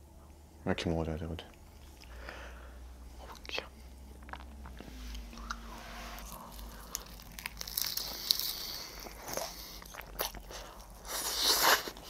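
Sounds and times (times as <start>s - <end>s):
crunching fried chicken: 6.2s - 12.0s.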